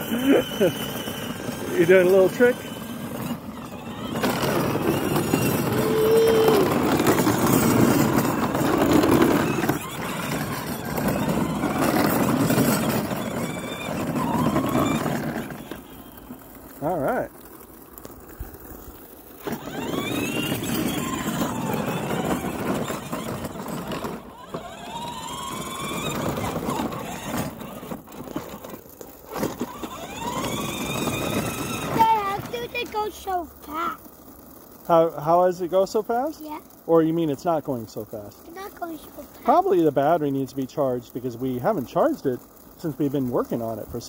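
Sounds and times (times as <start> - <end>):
electric motor whine: 0.0 - 32.8
plastic wheels rumbling: 0.0 - 44.0.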